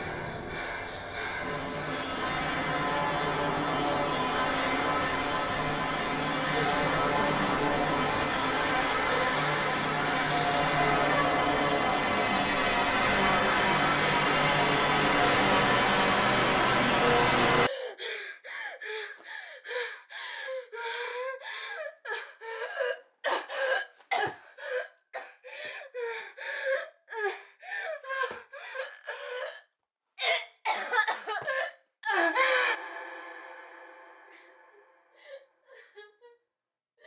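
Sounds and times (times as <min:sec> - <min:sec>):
music: 0:00.0 - 0:17.7
woman gasping and whimpering: 0:17.7 - 0:30.5.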